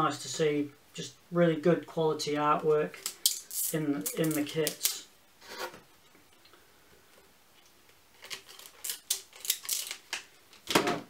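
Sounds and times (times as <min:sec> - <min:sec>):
paper roll crackling and rustling: 0:08.1 - 0:10.8.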